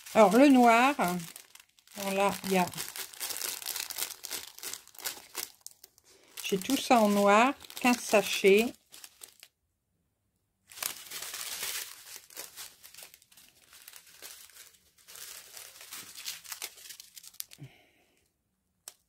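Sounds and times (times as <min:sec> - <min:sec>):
plastic bags crinkling: 0:00.0 - 0:09.5, 0:10.7 - 0:17.8.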